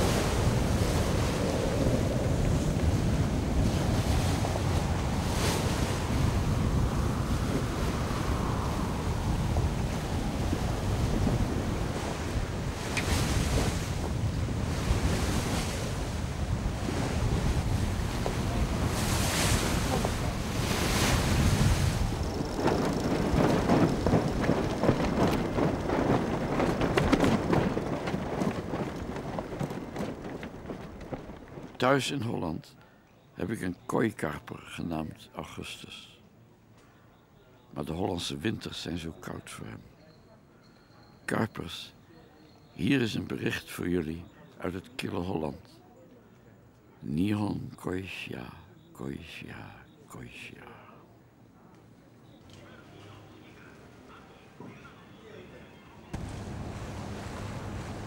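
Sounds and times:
wind buffeting microphone: 0.0s - 32.0s, 56.1s - 58.0s
water rushing past hull: 0.0s - 32.1s, 56.1s - 58.0s.

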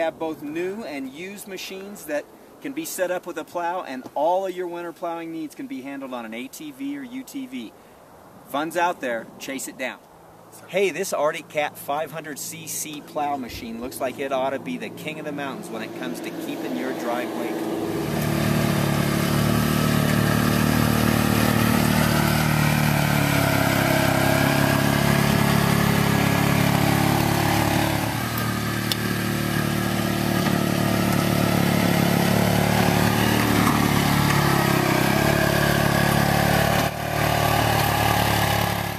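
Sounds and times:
atv engine running: 14.6s - 38.9s.

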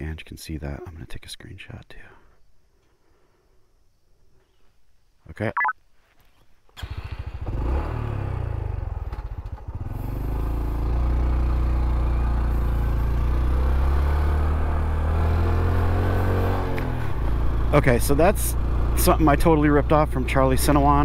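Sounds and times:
motorcycle engine pulling away: 6.8s - 21.0s.

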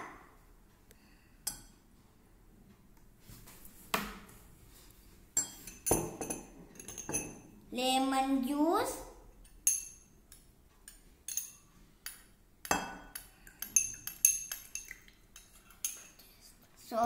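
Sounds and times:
spoon clinking against glass bowl: 5.4s - 7.4s, 9.4s - 16.2s.

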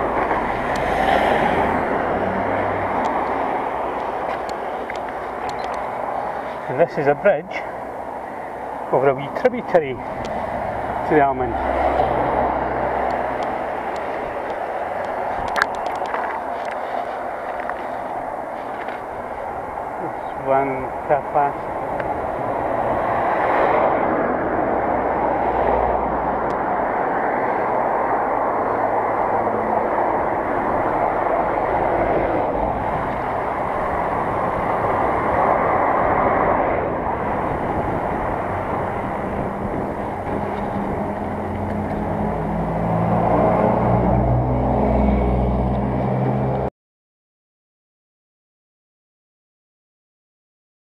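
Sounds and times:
wind on microphone: 7.8s - 46.7s
bicycle tyres rolling: 13.2s - 20.0s, 32.8s - 42.3s.

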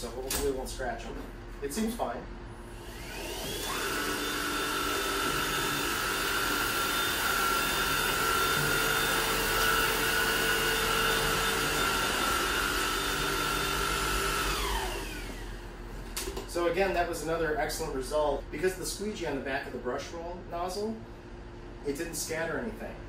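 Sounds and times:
vacuum cleaner motor whine: 2.6s - 15.7s.

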